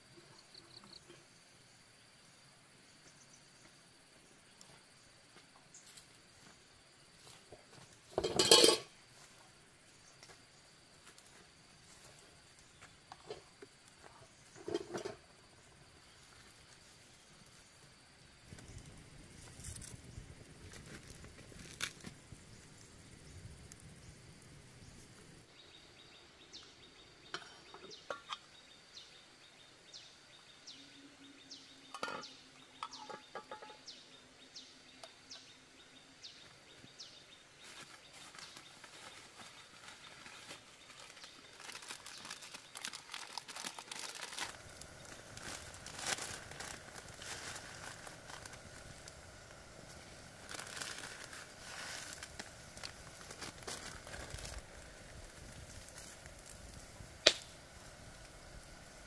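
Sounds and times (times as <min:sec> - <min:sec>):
wood fire crackling: 0:13.1 - 0:25.5, 0:37.7 - 0:59.0.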